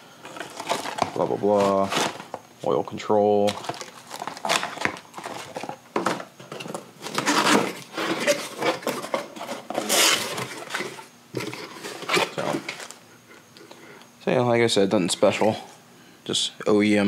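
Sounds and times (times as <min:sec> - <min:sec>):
cardboard and wrapping rustling: 0:00.2 - 0:13.0.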